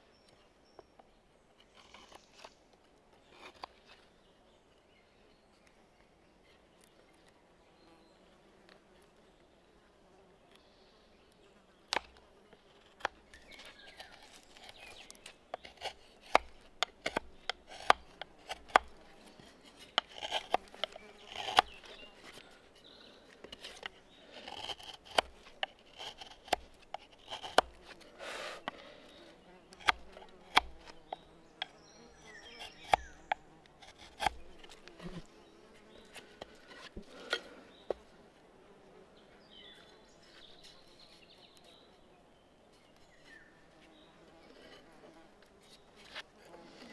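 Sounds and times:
faint insects buzzing: 0.0s - 46.9s
tool scraping wood: 11.9s - 29.1s, 29.7s - 31.8s, 32.4s - 38.1s, 43.8s - 46.9s
hand tools clicking and knocking on wood: 12.8s - 22.5s, 23.3s - 28.9s, 29.7s - 31.8s, 32.5s - 35.3s.

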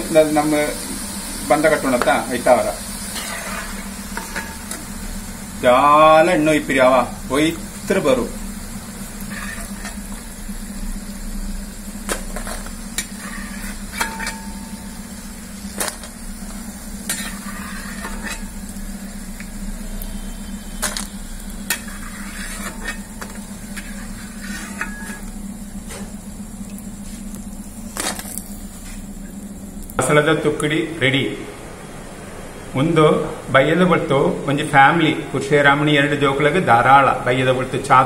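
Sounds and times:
oil sizzling with dough frying: 0.0s - 30.7s
steady low hum: 0.0s - 38.0s.

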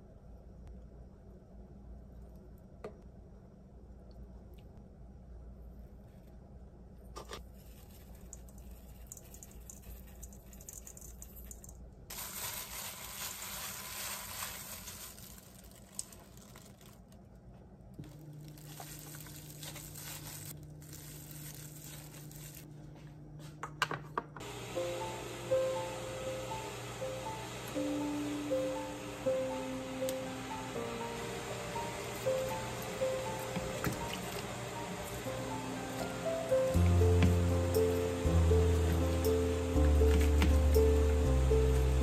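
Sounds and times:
gloved hand squeezing food in bowl: 7.4s - 17.2s, 18.0s - 22.6s
soft background music: 24.4s - 42.0s.

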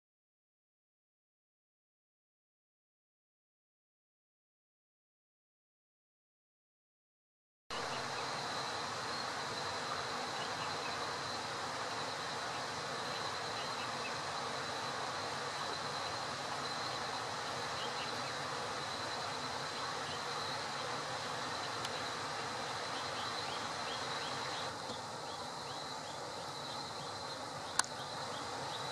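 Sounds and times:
high-pitched whine: 7.7s - 28.9s.

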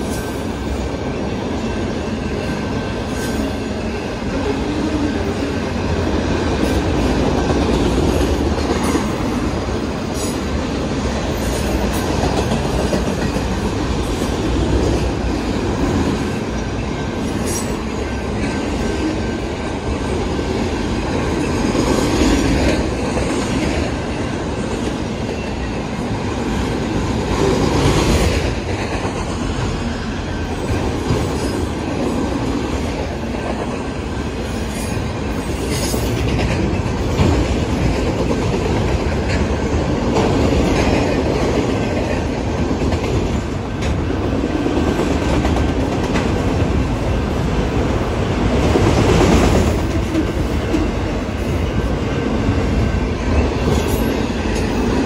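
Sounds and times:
rhythmic clickety-clack of rail joints: 0.0s - 55.0s
steel wheels rumbling on rail: 0.0s - 55.0s.

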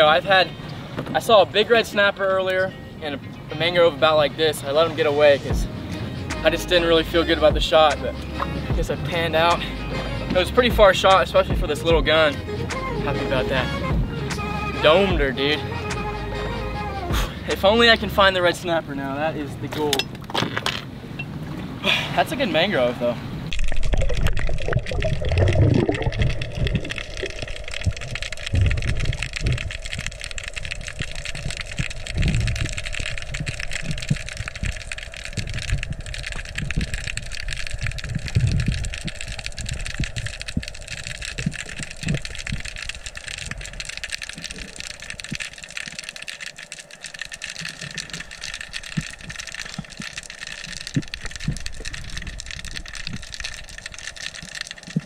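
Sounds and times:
water rushes and thumps: 0.0s - 2.7s, 3.5s - 16.1s, 16.8s - 55.0s
underwater mechanical hum: 21.0s - 55.0s.

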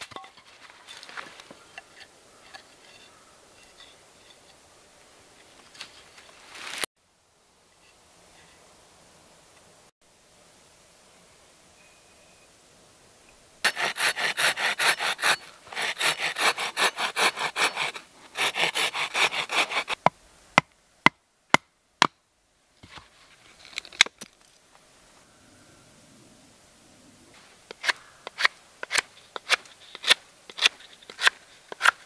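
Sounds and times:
hand saw rasping through wood: 13.6s - 20.0s.

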